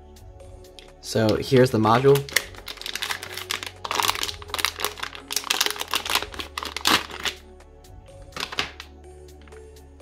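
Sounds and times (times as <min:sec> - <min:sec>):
soft background music: 0:00.0 - 0:10.0
plastic bag crinkling: 0:01.3 - 0:07.4, 0:08.4 - 0:08.9.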